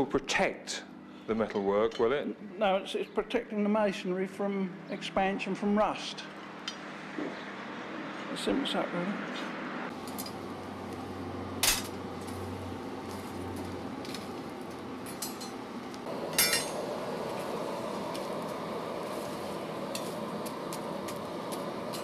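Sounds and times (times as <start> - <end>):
coal forge noise: 9.9 - 22.0
ringing metallic clink: 16.3 - 16.8.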